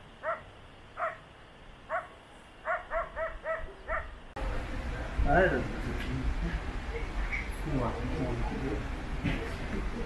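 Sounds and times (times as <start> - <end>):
dog barking: 0.2 - 1.2, 1.9 - 4.2.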